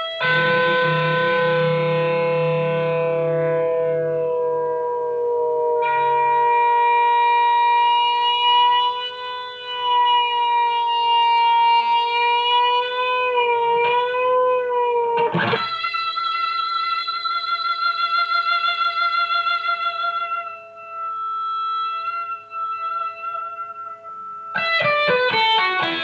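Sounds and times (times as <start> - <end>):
sustained electric guitar note: 0.0 - 7.4
guitar string strike: 0.0 - 7.5.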